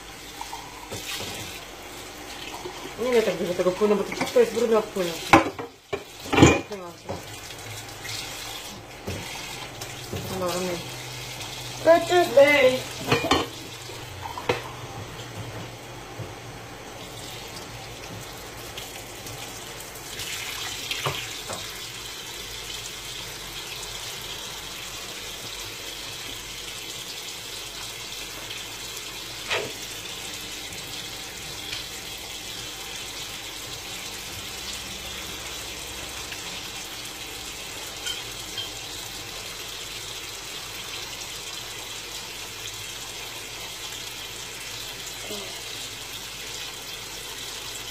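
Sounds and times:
cup being washed by hand: 0.0 - 15.6
tap running into a sink: 0.5 - 1.6, 8.1 - 10.4, 17.5 - 19.4, 20.2 - 21.9.

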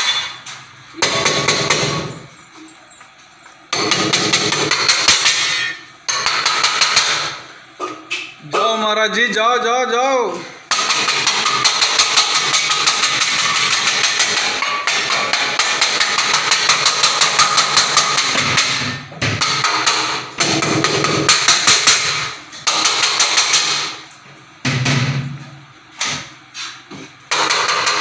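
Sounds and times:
rapid rhythmic banging on metal: 1.0 - 2.3, 3.7 - 7.4, 10.7 - 24.0, 27.3 - 28.0.

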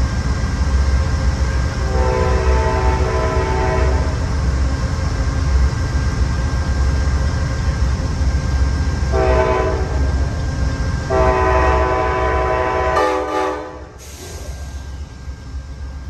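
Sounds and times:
low train rumble: 0.0 - 16.0
train horn blasts: 1.8 - 4.2, 9.1 - 10.1, 11.1 - 14.0.

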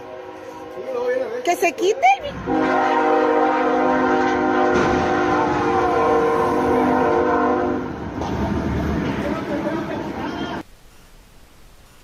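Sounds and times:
locomotive air horn blast: 0.0 - 1.2, 2.3 - 8.0.

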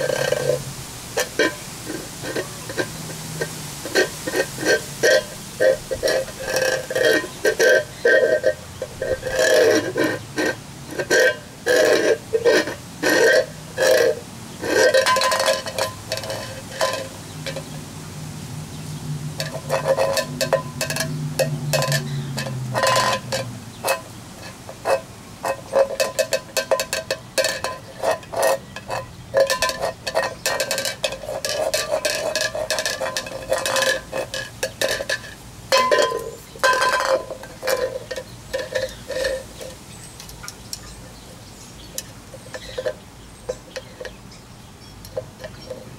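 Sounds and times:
can scraping on concrete: 0.0 - 17.8, 19.4 - 40.9, 41.8 - 44.2, 45.0 - 45.9
beak knocking on metal can: 19.4 - 24.0, 24.8 - 39.4.

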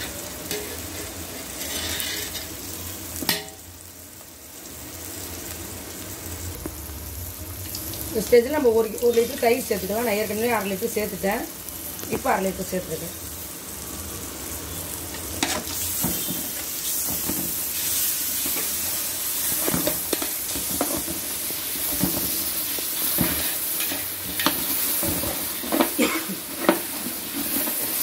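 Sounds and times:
masala sizzling in hot oil: 0.0 - 28.0
metal ladle scraping a pot: 0.5 - 2.5.

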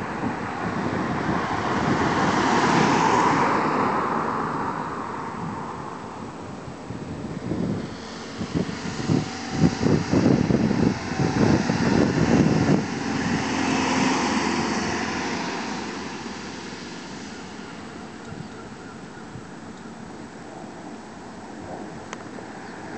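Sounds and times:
wind buffeting microphone: 0.0 - 22.9
van driving past: 7.3 - 20.3.

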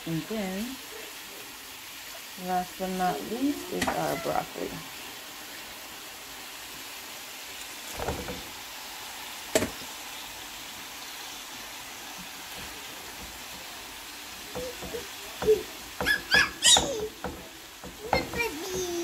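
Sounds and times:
vegetables sizzling in a pan: 0.0 - 19.0
knocks on pan: 8.0 - 8.5, 9.5 - 9.9, 12.6 - 13.7, 14.5 - 19.0.

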